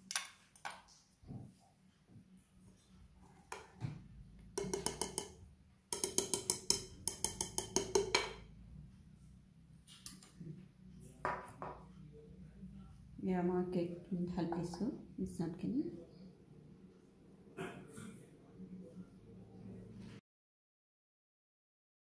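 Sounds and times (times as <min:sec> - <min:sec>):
whisk beating batter in glass bowl: 0:04.6 - 0:05.3.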